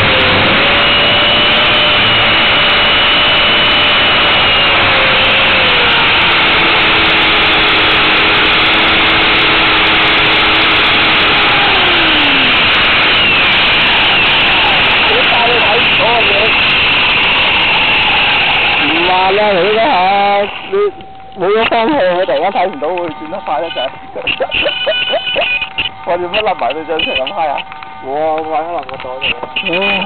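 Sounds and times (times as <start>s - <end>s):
motor and gear whine: 0.0s - 30.0s
rotor wash rushing: 0.0s - 30.0s.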